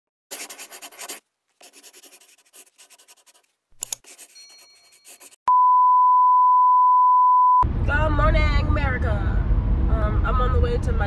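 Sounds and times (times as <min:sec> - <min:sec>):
pen scribbling on paper: 0:00.3 - 0:05.4.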